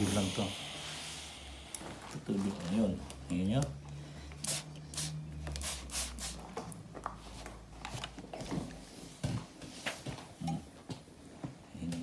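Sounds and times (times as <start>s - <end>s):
spray bottle squirts: 4.4s - 6.4s.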